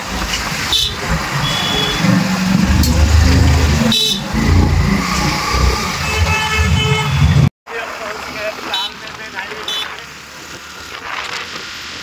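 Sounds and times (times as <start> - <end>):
vehicle horn honking: 0.7 - 2.2, 3.8 - 4.4, 5.8 - 7.4.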